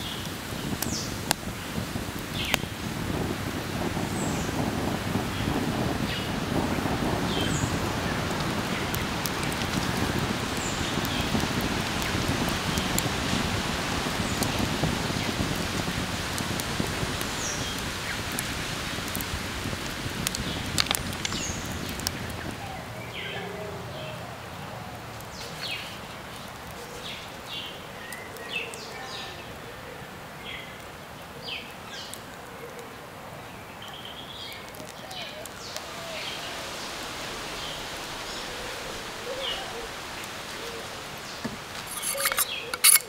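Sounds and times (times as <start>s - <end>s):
dense hiss with crackles: 0.0s - 43.0s
birds chirping: 33.6s - 43.0s.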